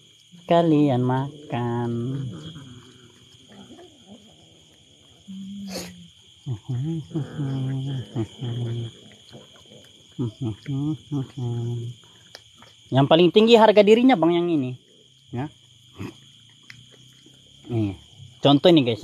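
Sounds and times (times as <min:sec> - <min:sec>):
crickets chirring: 0:00.0 - 0:19.0
cats growling: 0:01.0 - 0:12.0.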